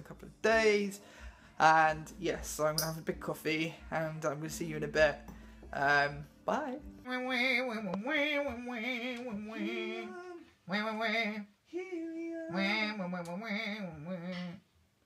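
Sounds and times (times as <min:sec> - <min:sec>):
singer breathing: 0:01.0 - 0:01.6, 0:05.2 - 0:05.8
person singing: 0:01.6 - 0:14.6.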